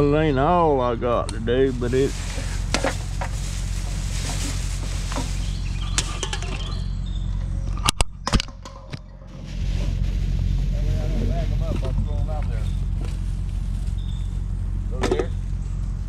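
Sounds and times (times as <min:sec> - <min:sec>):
steady low hum: 0:00.0 - 0:16.0
plastic bag rustling: 0:01.7 - 0:06.8, 0:09.3 - 0:10.8, 0:12.7 - 0:14.3.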